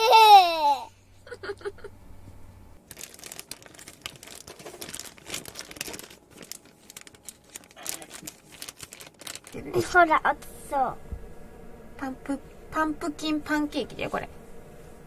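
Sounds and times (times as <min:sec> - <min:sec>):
packet crinkling and rustling: 0:02.8 - 0:10.0.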